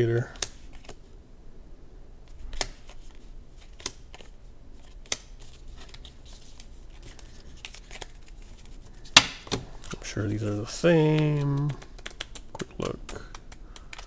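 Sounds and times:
playing cards rustling: 0:00.2 - 0:01.1, 0:02.3 - 0:14.0
playing cards snapping together: 0:00.4 - 0:01.0, 0:02.5 - 0:03.0, 0:03.6 - 0:04.3, 0:05.0 - 0:05.3, 0:11.0 - 0:14.0.

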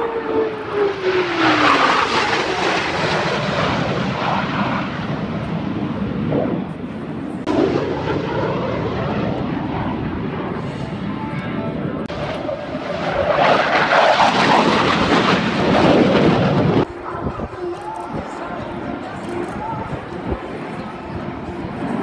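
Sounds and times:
jets flying past roaring: 0:00.0 - 0:17.5.

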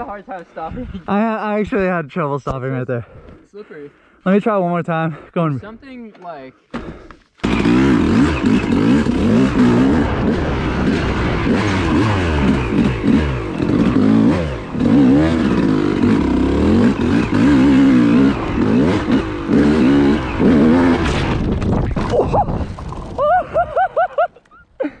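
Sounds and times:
dirt bike engine revving: 0:06.8 - 0:23.1.

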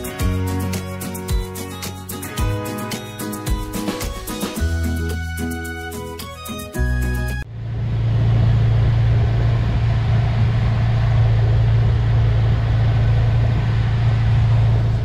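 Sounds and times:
motorboat engine drone: 0:07.5 - 0:15.0.

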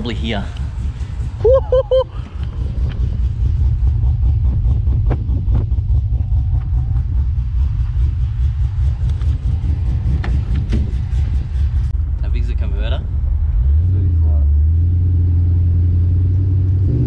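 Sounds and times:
car engine idling: 0:00.0 - 0:16.8.

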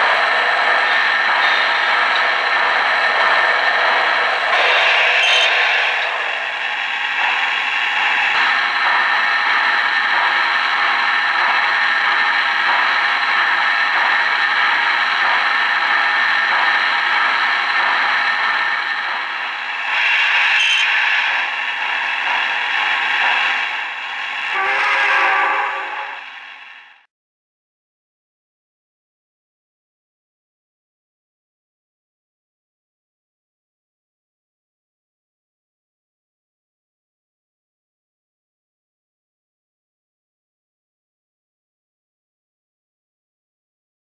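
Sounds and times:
model train wheels clattering: 0:00.0 - 0:26.4.

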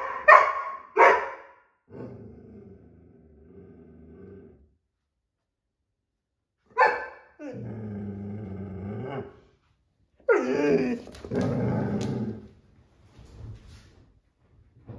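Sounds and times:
dog barking: 0:00.0 - 0:01.6, 0:06.7 - 0:07.4
dog growling: 0:01.9 - 0:04.7, 0:07.4 - 0:09.4, 0:10.3 - 0:12.6.

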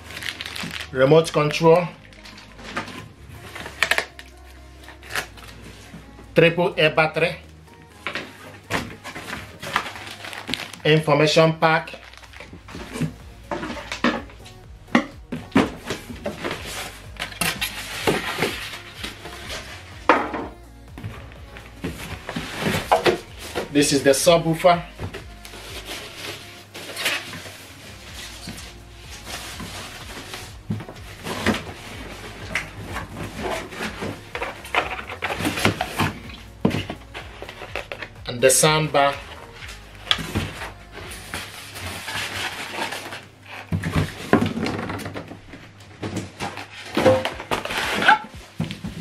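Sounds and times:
plastic bag rustling: 0:00.0 - 0:04.2, 0:08.2 - 0:14.5, 0:21.4 - 0:49.0
packaging rustling: 0:00.0 - 0:05.9, 0:08.1 - 0:11.0, 0:11.7 - 0:14.1, 0:39.1 - 0:49.0
cardboard and foam scraping: 0:15.4 - 0:20.2, 0:21.0 - 0:49.0.

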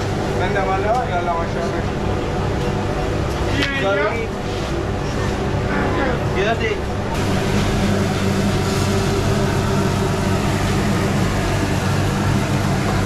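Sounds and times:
low motor hum: 0:04.1 - 0:13.0.

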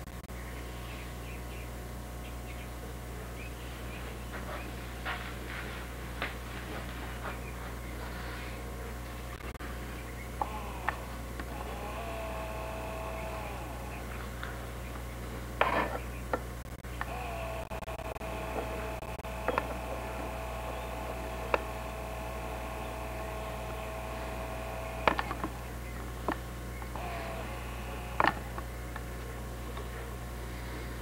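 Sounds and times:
low electrical hum: 0:00.0 - 0:31.0
zoom motor whining: 0:10.4 - 0:14.4, 0:16.8 - 0:28.7
sharp clicks: 0:16.3 - 0:22.4, 0:24.8 - 0:29.1.

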